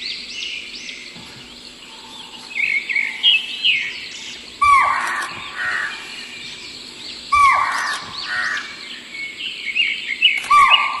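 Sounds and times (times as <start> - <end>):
loud bird call: 4.6 - 6.3, 7.3 - 9.1, 10.4 - 11.0.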